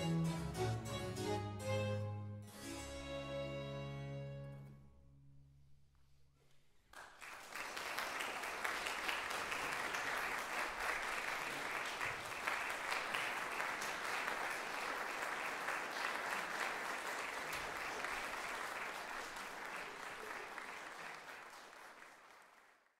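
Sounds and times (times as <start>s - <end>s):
audience applause: 6.9s - 22.9s.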